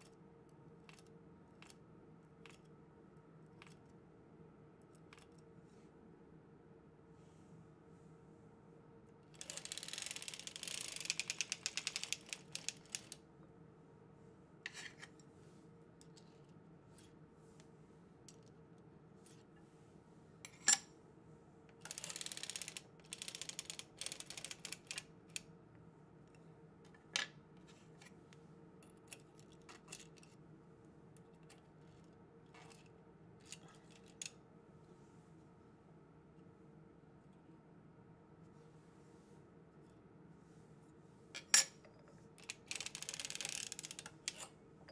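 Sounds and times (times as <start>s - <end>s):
knitting machine rapid clicking: 9.4s - 13.2s, 21.8s - 25.1s, 42.4s - 44.4s.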